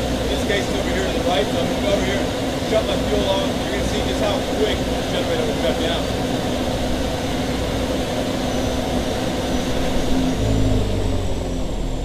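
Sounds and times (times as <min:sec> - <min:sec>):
generator engine winding down: 0:06.7 - 0:12.0.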